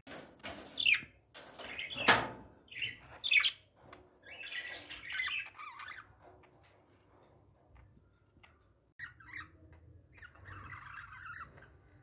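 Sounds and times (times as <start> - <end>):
budgerigars chirping and squawking: 0.8 - 6.6, 8.4 - 12.0.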